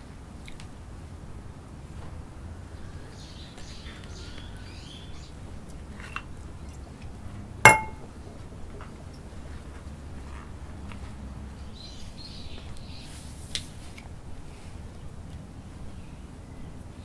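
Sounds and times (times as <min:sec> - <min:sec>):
glass bottle clinking: 0:07.7 - 0:08.0.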